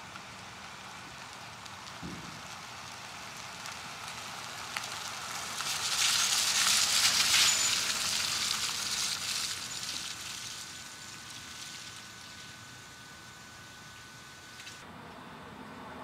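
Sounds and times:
tyres hissing on wet road: 0.0s - 14.8s.

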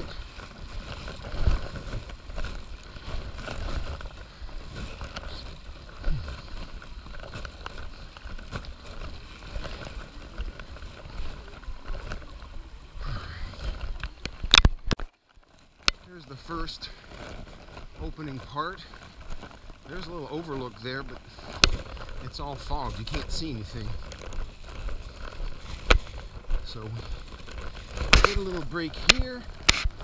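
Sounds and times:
camera handling noise: 14.0s - 15.1s, 29.1s - 30.0s
footsteps on wet stone steps: 15.8s - 30.0s.

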